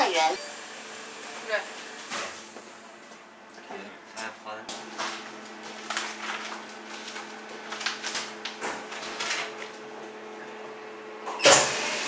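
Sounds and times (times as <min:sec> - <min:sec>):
plastic bags rustling: 0:05.0 - 0:09.7.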